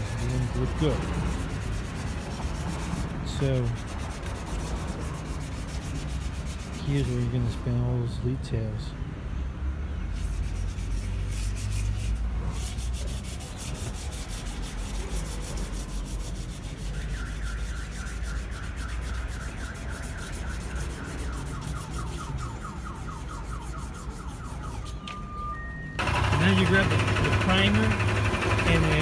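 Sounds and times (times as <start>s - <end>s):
wet sandpaper scrubbing metal: 0.0s - 7.6s, 10.2s - 24.9s, 26.0s - 29.0s.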